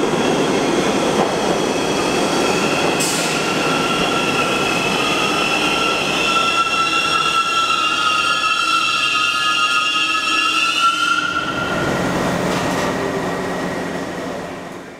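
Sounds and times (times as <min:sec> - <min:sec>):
train wheels rumbling on rails: 0:00.0 - 0:14.9
high-pitched wheel squeal: 0:02.0 - 0:12.1.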